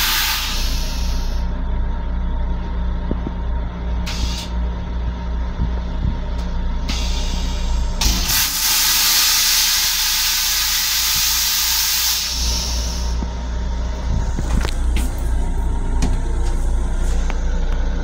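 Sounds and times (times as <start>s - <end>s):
toilet flushing spray hiss: 0.0s - 1.4s, 6.9s - 13.2s
railcar low rumble: 0.0s - 18.0s.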